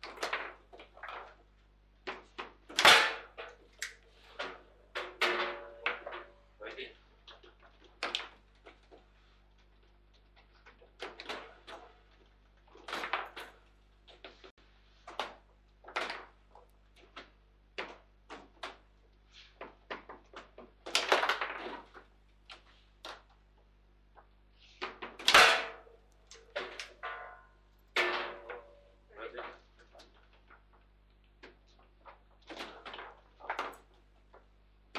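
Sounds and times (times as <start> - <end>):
foosball ball and rods knocking: 2.1 - 3.6, 4.4 - 6.4, 25.0 - 28.9.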